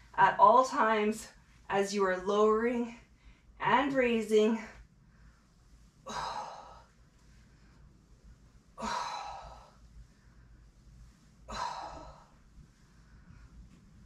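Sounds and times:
woman breathing hard: 0:06.0 - 0:07.8, 0:08.8 - 0:10.7, 0:11.4 - 0:13.6.

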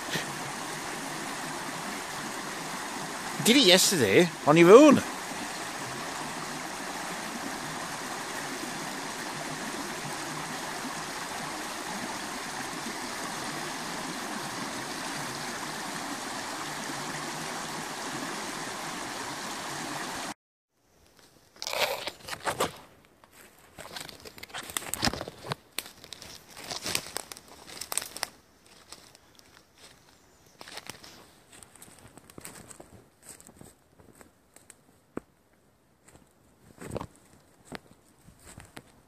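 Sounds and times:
stream rushing over rocks: 0:00.0 - 0:20.4
dry leaves crunching underfoot: 0:23.4 - 0:33.7.

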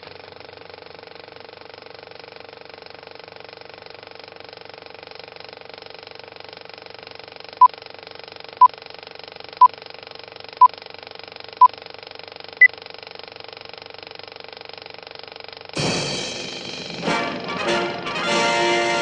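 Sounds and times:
film projector rattling: 0:00.0 - 0:15.8.

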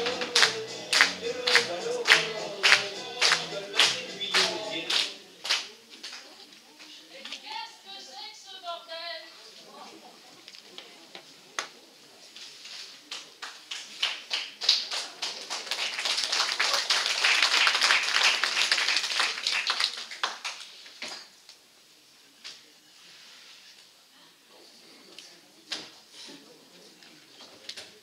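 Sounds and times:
audience applauding: 0:00.0 - 0:05.6, 0:13.4 - 0:20.8.

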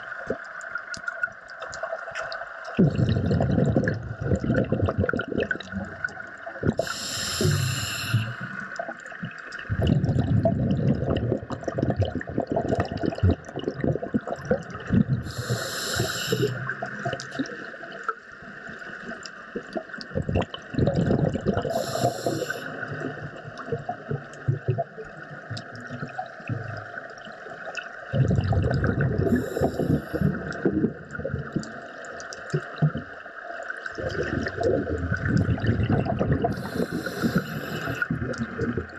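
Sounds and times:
underwater bubbling and gurgling: 0:00.0 - 0:38.9
diver breathing hiss: 0:06.8 - 0:08.7, 0:15.3 - 0:16.7, 0:21.7 - 0:22.8, 0:29.3 - 0:30.3, 0:36.5 - 0:38.1.

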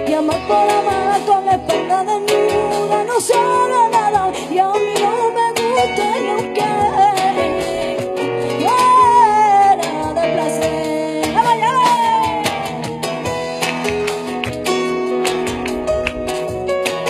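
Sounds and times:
woman singing: 0:00.0 - 0:13.4
plucked flamenco guitar: 0:00.0 - 0:17.0.

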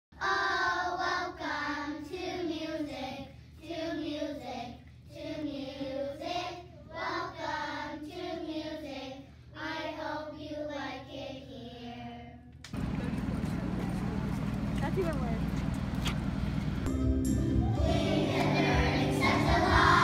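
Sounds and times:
children singing together: 0:00.2 - 0:12.3, 0:17.6 - 0:20.0.

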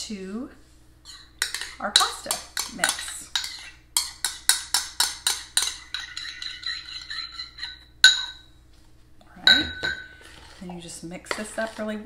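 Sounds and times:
spoon clinking in ceramic bowl: 0:01.1 - 0:08.5, 0:09.4 - 0:10.2
bowl ringing: 0:07.6 - 0:08.6, 0:09.4 - 0:10.3.

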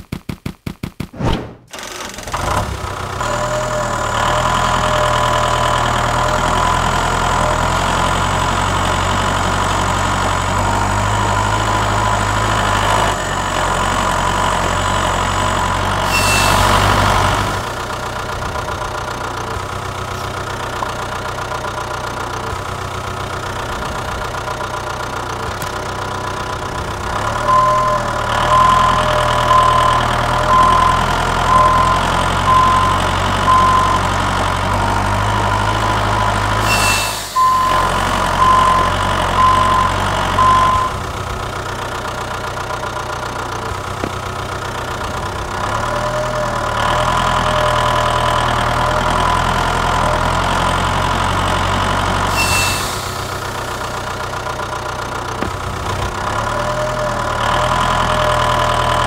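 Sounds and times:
tractor engine idling: 0:01.7 - 0:59.0
high beeps: 0:27.4 - 0:34.2, 0:36.6 - 0:41.0.

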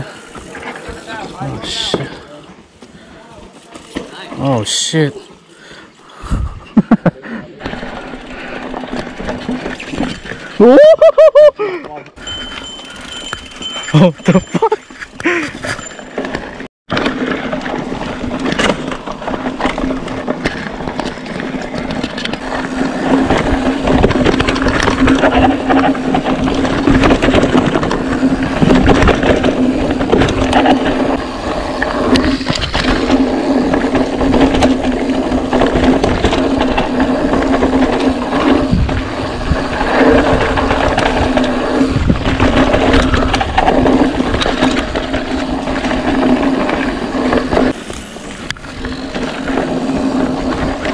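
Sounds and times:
bike rattling over bumps: 0:00.0 - 0:06.2, 0:06.8 - 0:11.2, 0:12.1 - 0:50.9
tyres crunching over dirt: 0:12.8 - 0:50.9.

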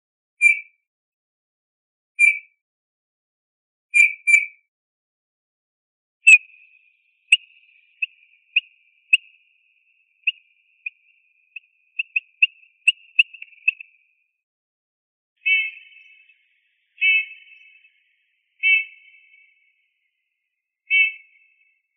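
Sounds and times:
bullfinch singing piping notes: 0:06.3 - 0:14.1, 0:15.4 - 0:19.8, 0:20.9 - 0:21.8.

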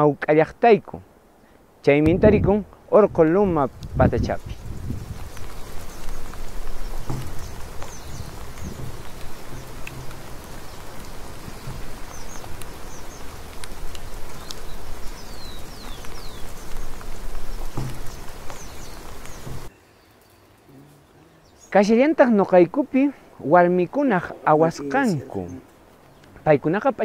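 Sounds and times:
steady rain-like hiss: 0:00.0 - 0:27.0
faint clicks: 0:05.3 - 0:19.6.

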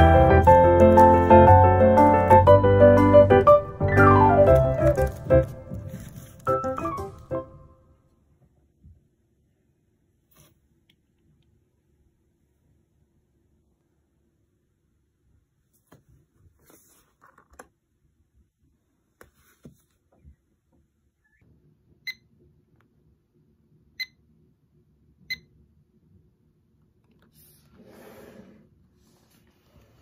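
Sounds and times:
hand rustling on table: 0:05.0 - 0:06.8.

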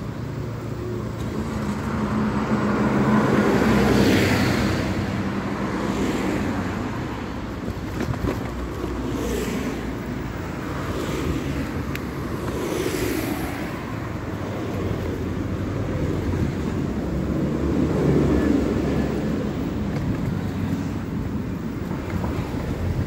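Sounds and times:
vehicle and road noise: 0:00.0 - 0:23.0.

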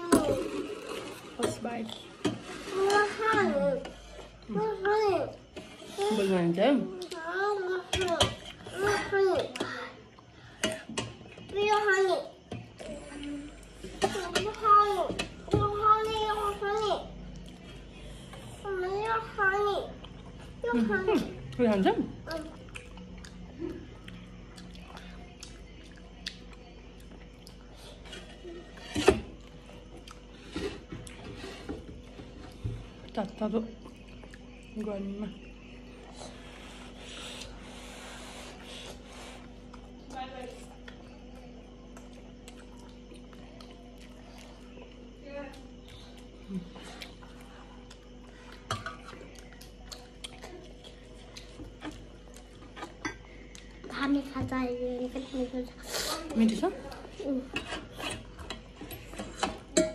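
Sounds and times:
faint steady hum: 0:00.0 - 0:59.9
soft chewing: 0:17.2 - 0:59.6.

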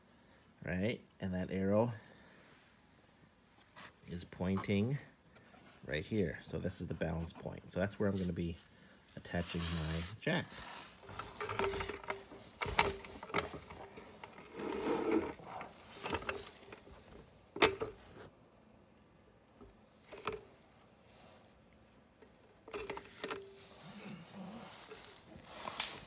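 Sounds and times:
floor jack metallic clicks and rattles: 0:11.0 - 0:18.1.

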